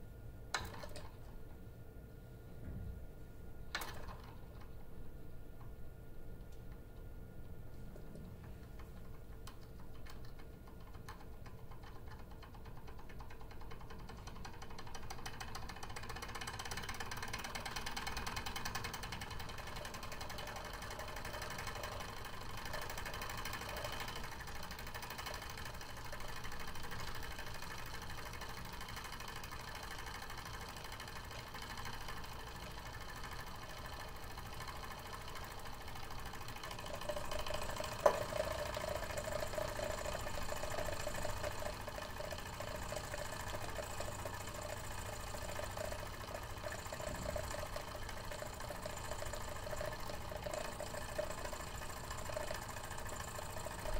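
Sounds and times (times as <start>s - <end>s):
model steam engine chuffing: 13.6s - 53.9s.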